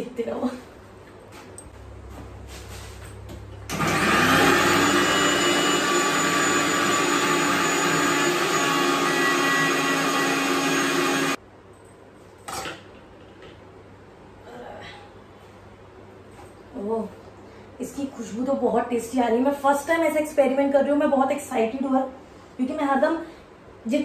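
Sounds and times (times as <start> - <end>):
mixer grinder motor running: 3.7 - 11.4.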